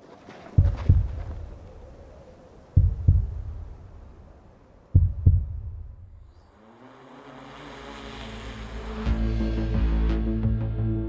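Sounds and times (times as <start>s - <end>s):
heartbeat double thump: 0.6s - 1.7s, 2.8s - 3.9s, 4.9s - 6.2s
low rising swell: 5.6s - 10.4s.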